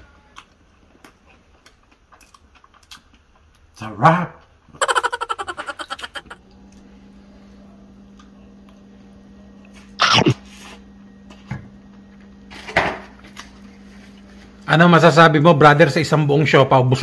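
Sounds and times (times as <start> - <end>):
laughter: 4.8 - 6.4
man sneezing: 10.0 - 10.4.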